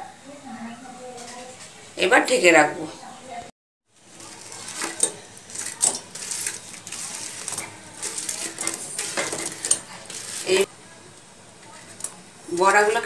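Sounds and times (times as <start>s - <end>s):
fritters dropping into syrup: 4.0s - 10.7s
metal spoon scraping a plate: 4.2s - 10.7s.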